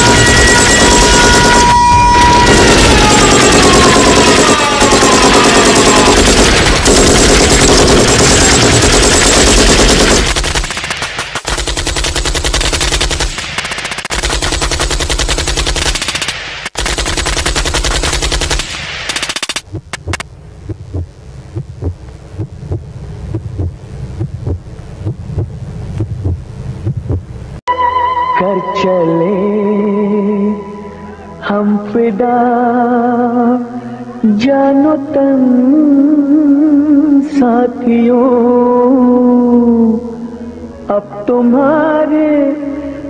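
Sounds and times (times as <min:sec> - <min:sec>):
electronic machine-gun fire: 0:00.0 - 0:20.2
thudding heartbeat pulse: 0:19.6 - 0:27.4.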